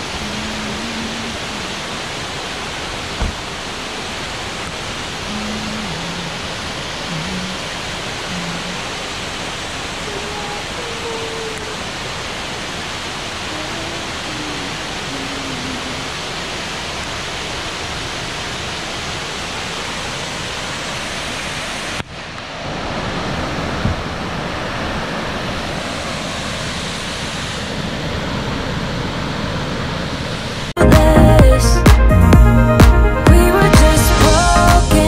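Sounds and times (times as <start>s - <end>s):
waterfall roaring: 0.0s - 30.8s.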